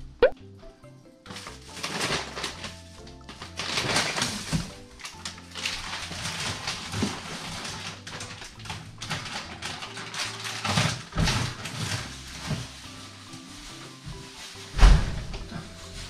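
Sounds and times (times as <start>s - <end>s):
plastic bags rustling: 1.3s - 16.0s.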